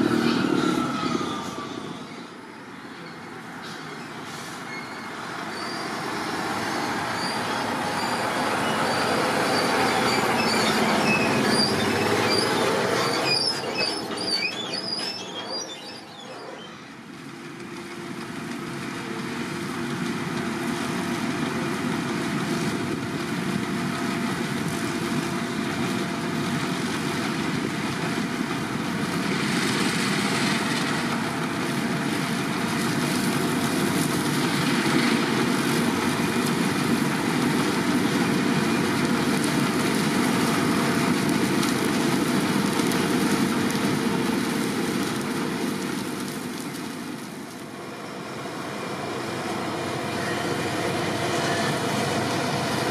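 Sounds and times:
wavering high squeal: 0.0 - 3.2, 4.6 - 16.9
tractor with trailer passing: 0.0 - 52.9
potato harvester running: 5.7 - 52.9.

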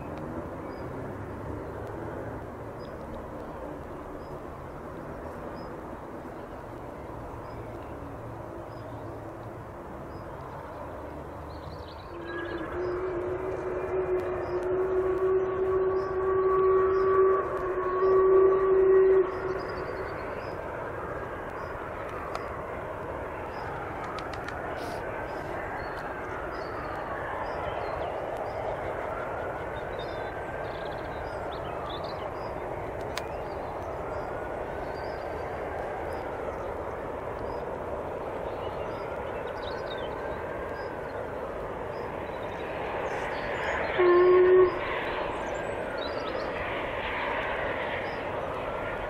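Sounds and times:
distant steam locomotive: 0.0 - 49.0
locomotive whistle blast: 12.1 - 19.8, 44.0 - 44.9.

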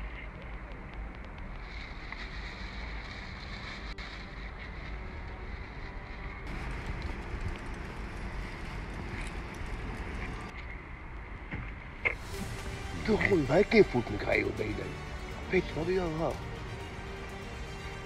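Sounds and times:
wind rumbling on microphone: 0.0 - 12.3
street noise: 0.0 - 18.0.

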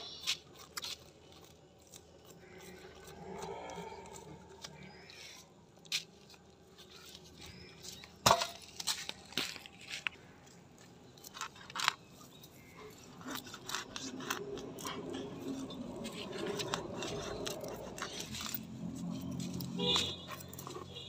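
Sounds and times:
blade scraping fish scales: 11.3 - 21.0.

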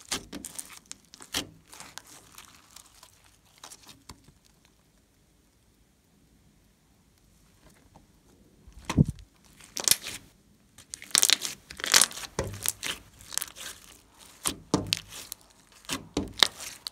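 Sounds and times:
slime squished by hand: 0.0 - 4.5, 8.8 - 10.2, 10.8 - 16.9.

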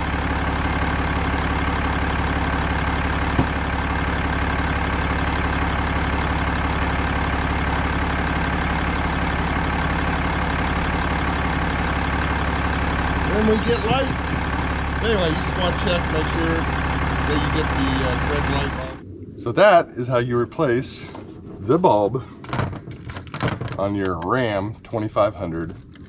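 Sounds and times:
pickup engine idling: 0.0 - 19.4.

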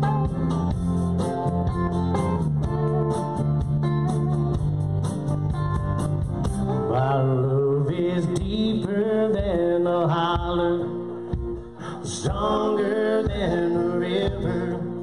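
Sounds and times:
bass guitar: 0.0 - 15.0
lead guitar: 0.0 - 15.0
rhythm guitar: 0.0 - 15.0.

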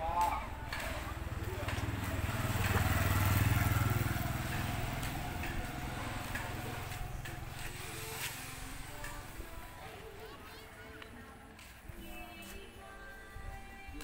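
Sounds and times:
vehicle engine running: 0.5 - 9.6.

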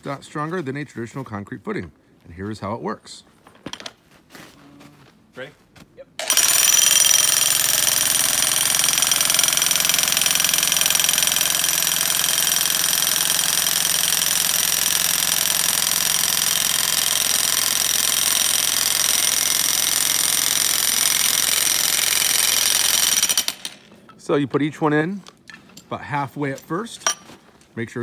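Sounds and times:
electric jackhammer whining: 6.2 - 23.9.

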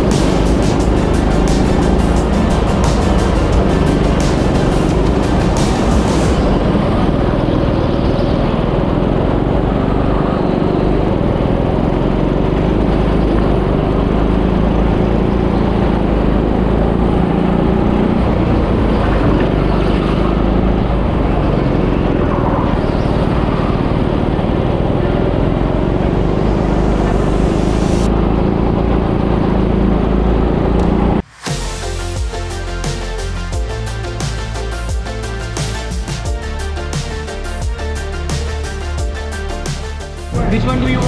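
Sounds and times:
go-kart engines racing: 0.0 - 31.3.

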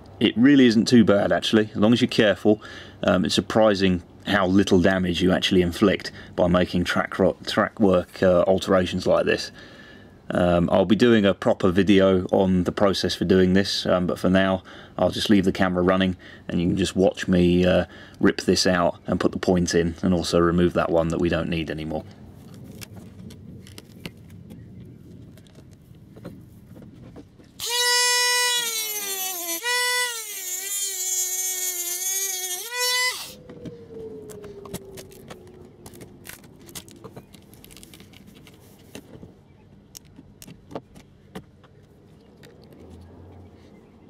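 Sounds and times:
rotary tool cutting metal rail: 27.6 - 33.4.

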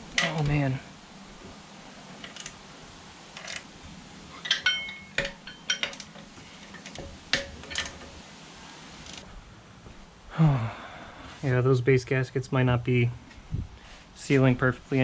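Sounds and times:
metal tools clinking: 0.1 - 0.6, 2.2 - 2.6, 3.4 - 3.7, 4.3 - 8.2.

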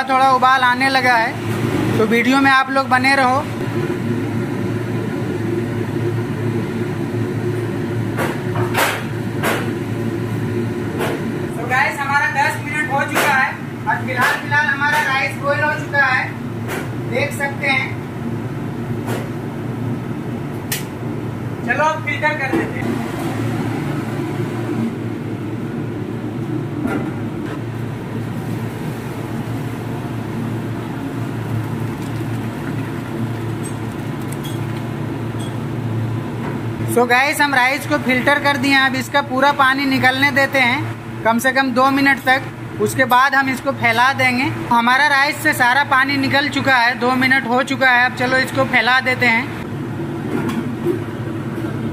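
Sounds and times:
ventilation hum: 0.0 - 51.9
exhaust hood hum and rush: 22.8 - 36.8
water draining into colander: 31.0 - 35.0.

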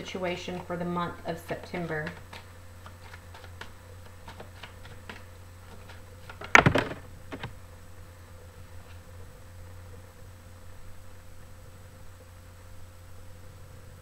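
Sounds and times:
cards being shuffled: 0.5 - 7.6.

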